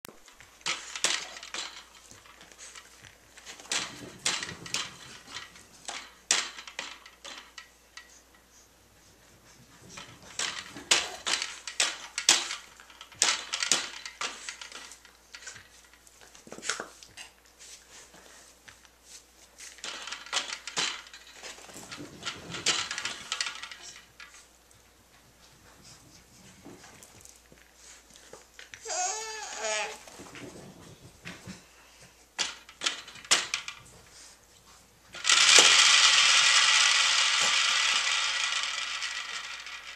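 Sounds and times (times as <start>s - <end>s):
plastic toy clicking and clattering: 0.2s - 8.2s, 9.8s - 17.2s, 19.8s - 24.4s, 32.4s - 33.9s, 35.1s - 39.9s.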